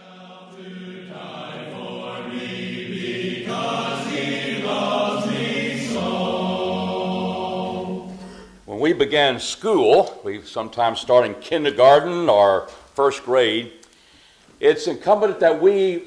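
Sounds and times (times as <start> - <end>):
choir singing held chords: 0.0 - 9.0.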